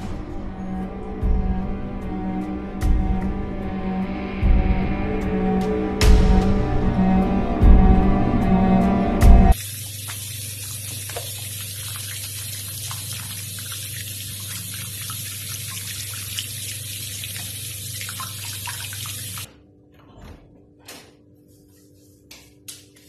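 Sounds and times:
tap water running into sink: 0:09.6 - 0:19.5.

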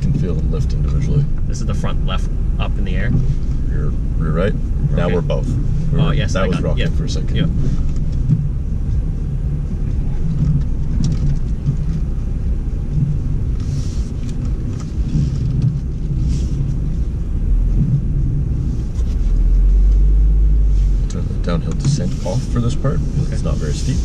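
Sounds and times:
car engine low rumble: 0:00.0 - 0:24.0.

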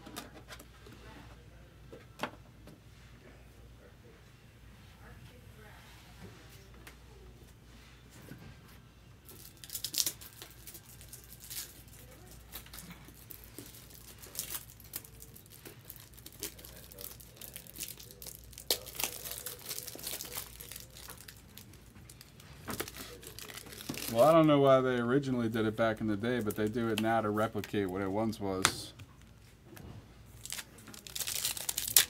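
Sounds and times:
card wrappers crinkling and tearing: 0:09.2 - 0:24.5, 0:30.4 - 0:32.0.

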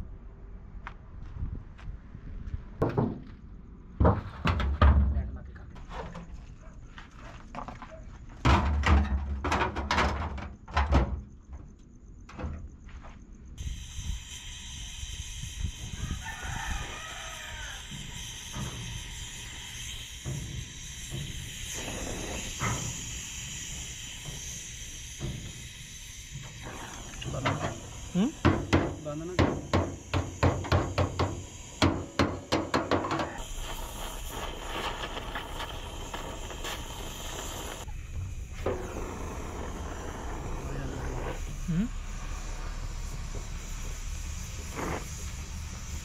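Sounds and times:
welding torch hissing: 0:13.6 - 0:46.0
loud metallic knocks: 0:28.4 - 0:33.4.

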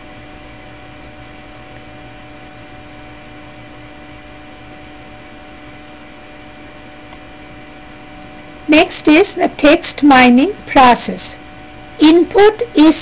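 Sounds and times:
faint electrical hum: 0:00.0 - 0:13.0
microphone hiss: 0:00.0 - 0:13.0.

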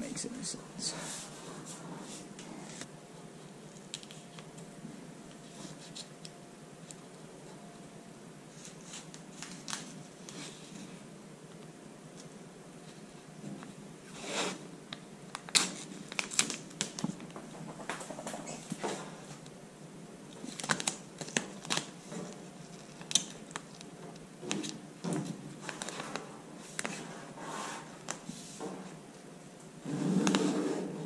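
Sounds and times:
tape crinkling and rustling: 0:03.6 - 0:04.7, 0:05.3 - 0:07.2, 0:08.5 - 0:10.9, 0:14.9 - 0:19.5, 0:20.3 - 0:27.1.

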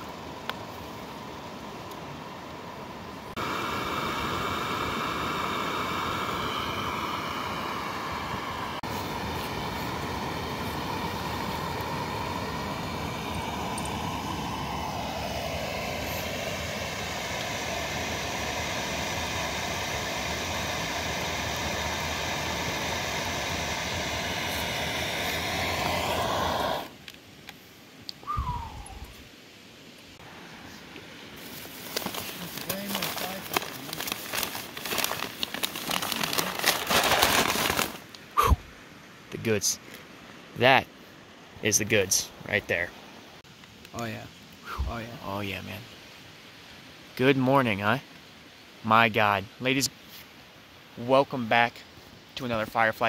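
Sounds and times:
gas stove burner hissing: 0:03.3 - 0:27.2.

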